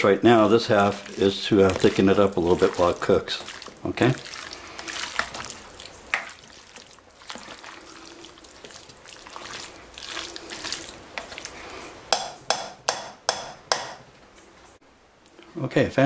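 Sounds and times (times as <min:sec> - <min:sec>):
spoon stirring thick mix: 0:00.0 - 0:12.7.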